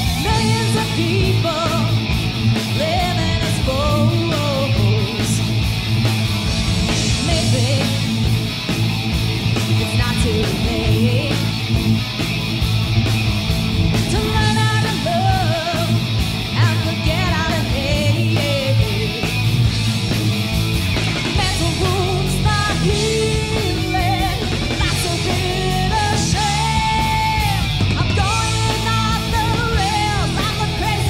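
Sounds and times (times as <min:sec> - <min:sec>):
live rock band playing: 0:00.0 - 0:31.0
woman singing: 0:00.2 - 0:02.0, 0:02.8 - 0:05.4, 0:07.2 - 0:08.1, 0:09.8 - 0:11.5, 0:14.1 - 0:16.0, 0:16.6 - 0:19.2, 0:21.4 - 0:31.0.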